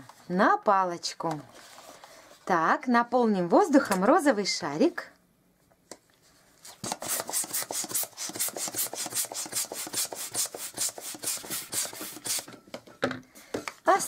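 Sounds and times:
hand balloon pump strokes: 6.7s - 12.6s.

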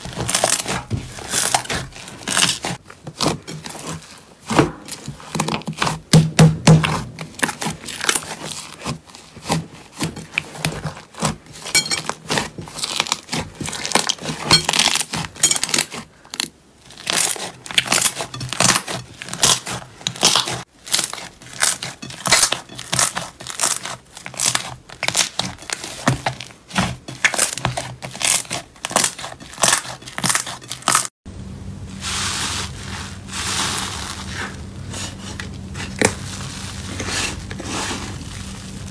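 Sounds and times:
foamy slime fizzing crackle: 31.8s - 38.9s.

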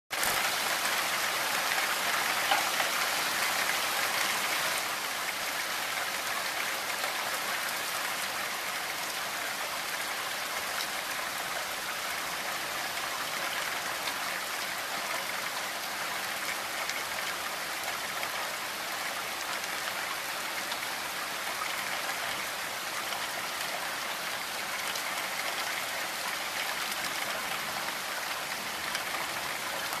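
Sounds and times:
heavy rain falling through trees: 0.1s - 30.0s.

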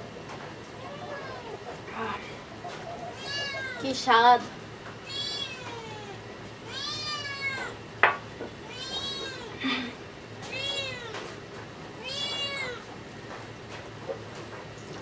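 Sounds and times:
cat meowing: 3.1s - 3.8s, 5.0s - 7.8s, 8.6s - 9.6s, 10.5s - 11.2s, 12.0s - 12.8s.

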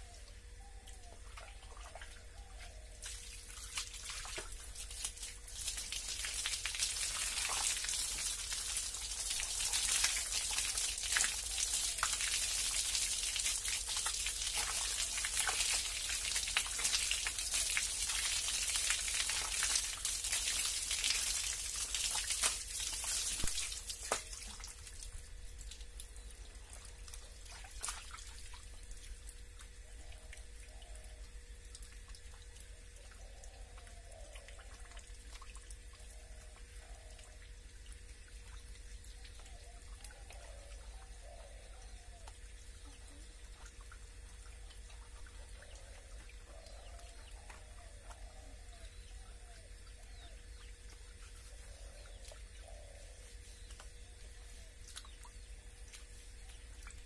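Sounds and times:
water from hose splashing: 2.9s - 29.3s.

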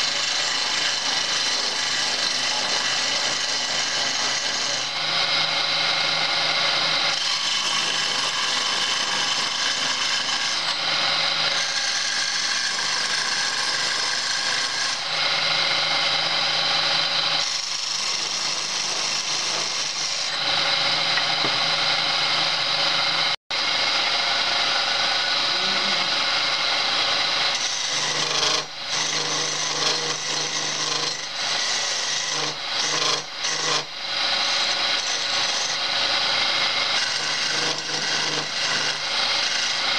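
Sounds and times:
chisel scraping spinning wood: 0.0s - 39.9s
lathe motor hum: 0.0s - 39.9s.

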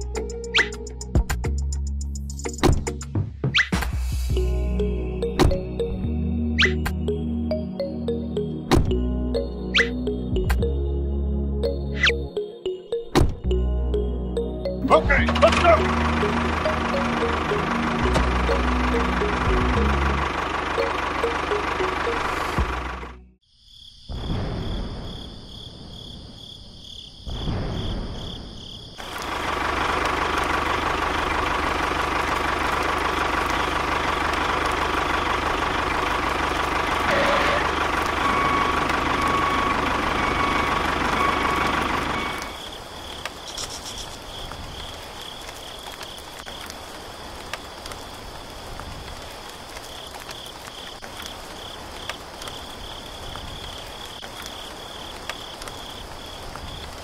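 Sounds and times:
tractor engine humming: 11.6s - 23.3s, 29.0s - 44.1s
crickets chirping: 23.4s - 29.6s, 42.4s - 57.0s.

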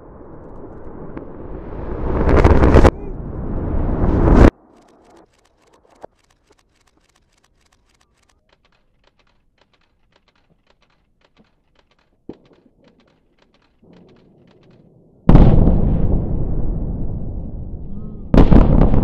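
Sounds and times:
faint scattered clicks: 4.6s - 14.9s
louder ticks: 4.6s - 14.9s.

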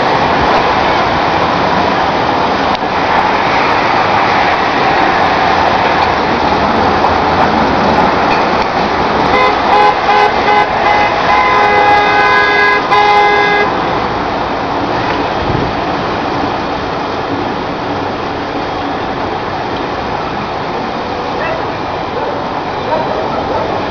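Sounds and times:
street traffic noise: 0.0s - 23.9s
car horn honking: 9.3s - 13.8s.

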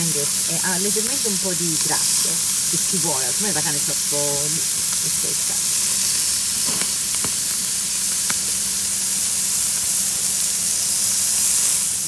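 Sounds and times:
steaks sizzling on a grill: 0.0s - 12.0s
fat popping: 6.5s - 8.5s.

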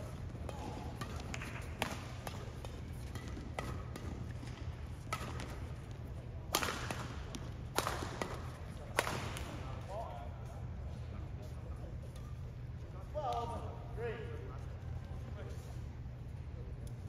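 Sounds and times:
sharp cracks in a large hall: 0.0s - 14.6s
steady low hum: 0.0s - 17.0s.

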